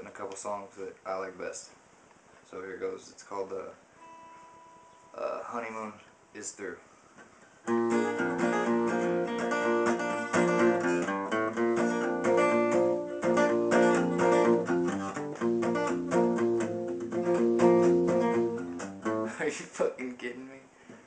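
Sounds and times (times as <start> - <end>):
acoustic guitar strumming chords: 4.0 - 6.5, 7.6 - 19.9.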